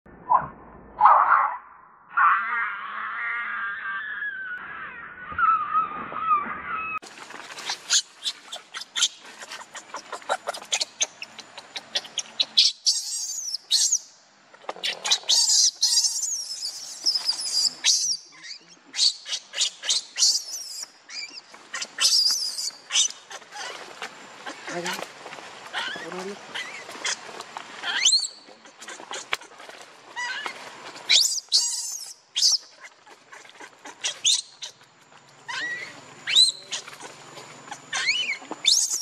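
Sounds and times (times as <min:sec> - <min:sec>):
baby monkey squealing: 0:07.9 - 0:14.0, 0:14.8 - 0:23.8, 0:25.7 - 0:27.2, 0:27.8 - 0:29.4, 0:30.2 - 0:34.8, 0:35.5 - 0:37.1, 0:37.7 - 0:39.0.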